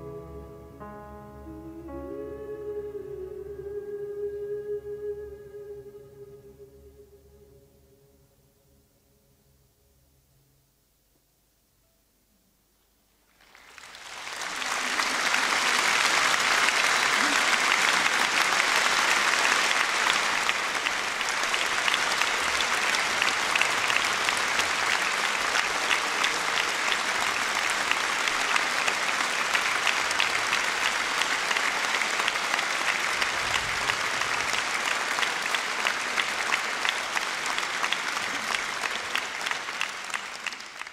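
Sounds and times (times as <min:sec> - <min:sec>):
large audience applauding: 0:13.3 - 0:40.9.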